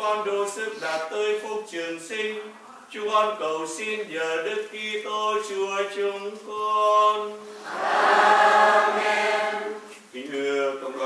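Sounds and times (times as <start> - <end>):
choir singing a hymn: 7.5 - 10.0.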